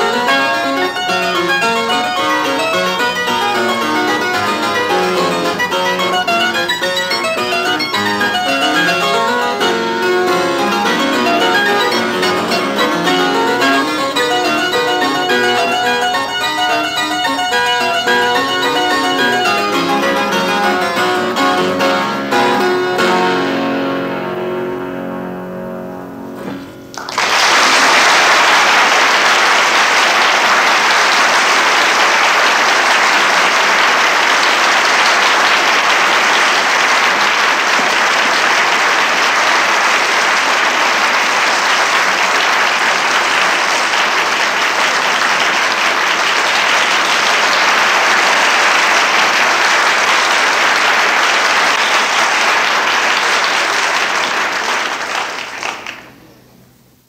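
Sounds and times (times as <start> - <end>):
audience applause: 0.0 - 22.0, 26.9 - 56.2
harpsichord notes: 0.0 - 26.9.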